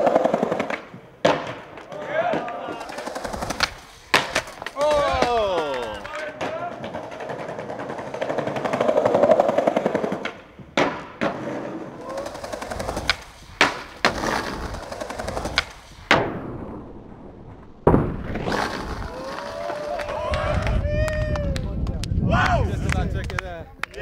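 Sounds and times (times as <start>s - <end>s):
skateboard clacks: 0.0s - 16.4s
skateboard wheels rolling on paving: 0.0s - 24.0s.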